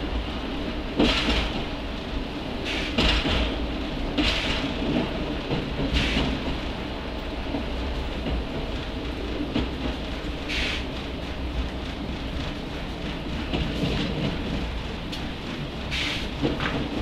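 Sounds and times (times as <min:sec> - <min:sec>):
diesel railcar rumbling: 0:00.0 - 0:17.0.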